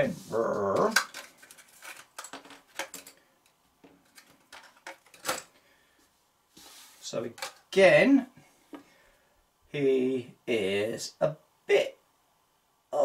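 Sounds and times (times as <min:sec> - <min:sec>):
cards clicking and rustling: 0:00.6 - 0:05.6, 0:07.3 - 0:07.7.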